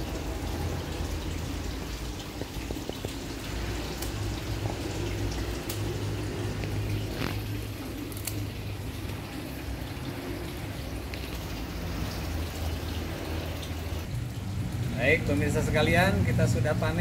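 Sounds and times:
running trickling water: 0:00.0 - 0:17.0
scissors snipping stems: 0:05.3 - 0:08.4.

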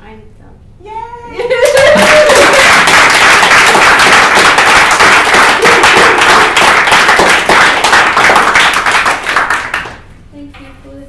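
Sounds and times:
audience applauding: 0:01.5 - 0:10.0.

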